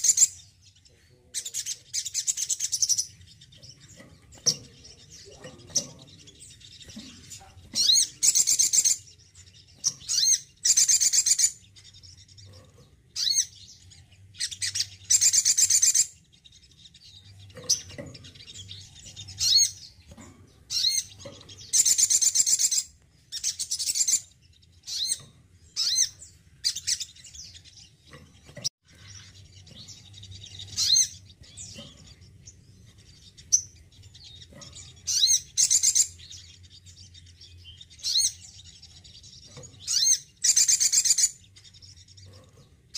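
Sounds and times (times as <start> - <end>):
sunbird singing high-pitched notes: 7.7 - 12.4, 13.2 - 20.0, 20.7 - 27.9, 28.9 - 42.0.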